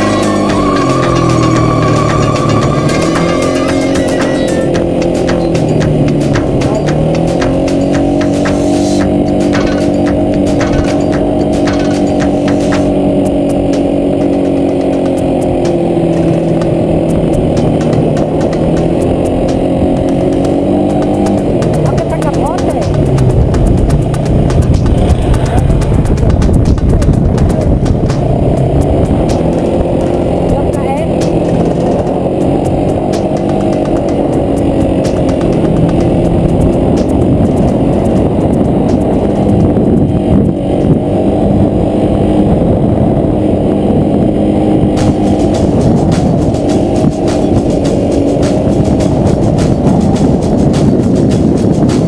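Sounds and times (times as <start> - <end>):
quad bike engine running: 0.0 - 52.0.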